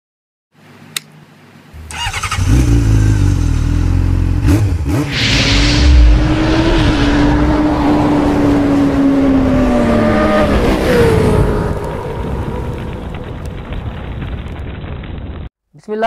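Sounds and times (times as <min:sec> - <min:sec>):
motorcycle engine revving: 0:01.8 - 0:12.8.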